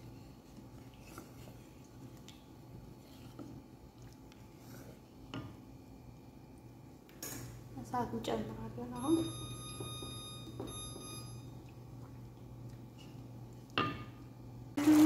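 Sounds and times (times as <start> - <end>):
low steady hum: 0.0 - 15.0
wooden spatula stirring sauce: 0.4 - 5.6.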